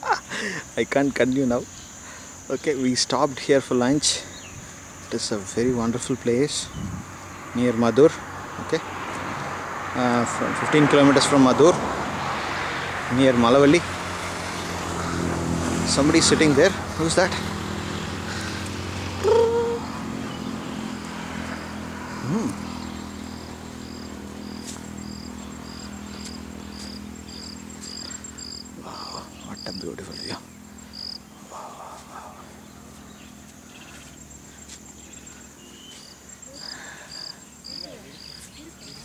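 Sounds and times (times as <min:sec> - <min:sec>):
insect chirping: 0:00.0 - 0:39.0
high-pitched buzz: 0:14.8 - 0:36.5.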